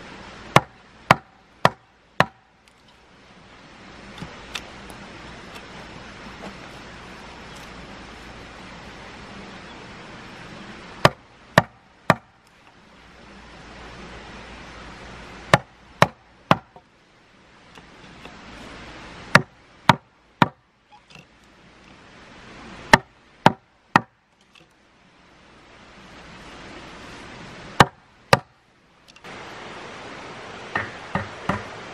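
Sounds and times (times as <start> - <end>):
wood chopping strikes: 0.5 - 2.5, 11.0 - 12.4, 15.5 - 16.8, 19.3 - 21.3, 22.9 - 24.7, 27.8 - 28.5, 30.7 - 31.8.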